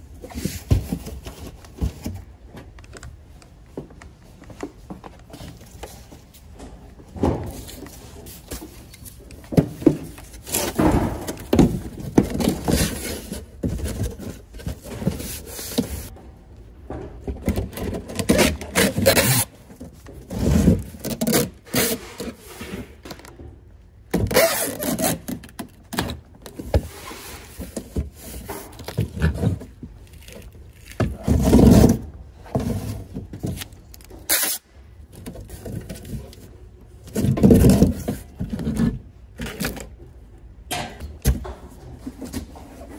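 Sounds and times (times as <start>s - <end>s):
cardboard boxes rubbing and rustling: 0.1s - 2.4s, 7.3s - 16.1s
packing tape gun sealing box: 17.7s - 22.5s, 24.2s - 26.9s, 33.4s - 34.6s.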